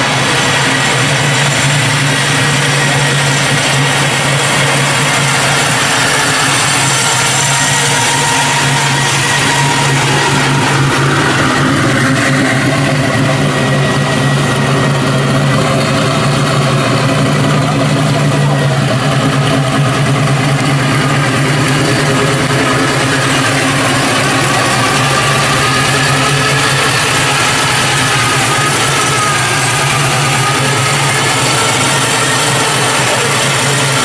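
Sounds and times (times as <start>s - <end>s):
pickup engine idling: 0.0s - 34.0s.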